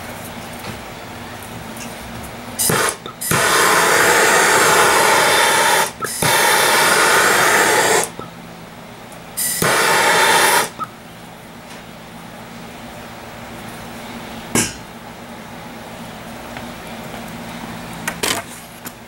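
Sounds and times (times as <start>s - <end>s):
blowtorch flame hissing: 2.6s - 8.2s, 9.4s - 10.8s.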